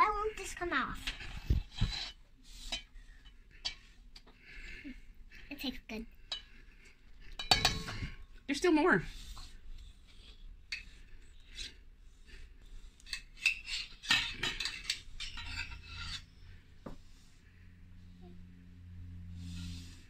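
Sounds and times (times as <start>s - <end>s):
spoon scraping metal bowl: 0.3s - 4.0s, 7.3s - 8.2s, 13.0s - 16.6s.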